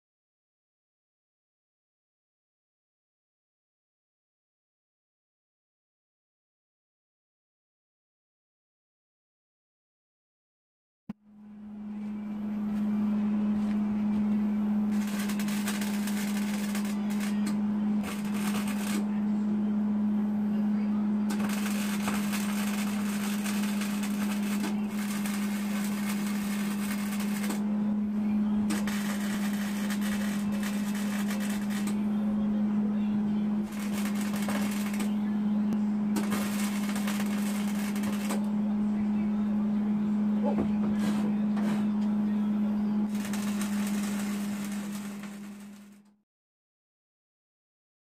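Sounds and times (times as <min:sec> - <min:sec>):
welder low hum: 0:11.2 - 0:46.1
welding arc crackling: 0:14.9 - 0:19.1, 0:21.3 - 0:27.7, 0:28.7 - 0:32.0, 0:33.6 - 0:35.2, 0:36.2 - 0:38.5, 0:43.1 - 0:46.0.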